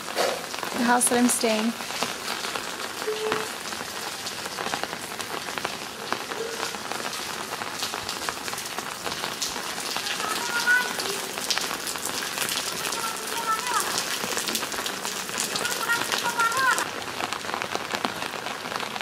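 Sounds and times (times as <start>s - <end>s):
rain pattering: 0.0s - 19.0s
water drips: 4.9s - 16.8s.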